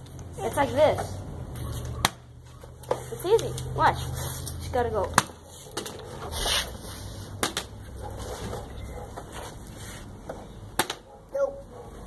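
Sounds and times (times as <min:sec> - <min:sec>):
plastic bottle hitting concrete: 0:07.4 - 0:07.8, 0:10.7 - 0:11.1.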